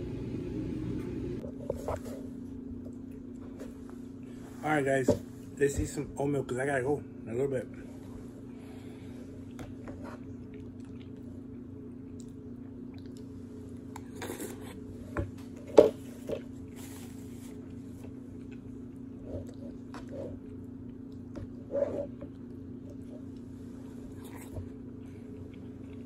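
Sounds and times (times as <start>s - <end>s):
low hum: 0.0s - 6.2s
person chewing: 9.4s - 14.9s, 16.6s - 26.0s.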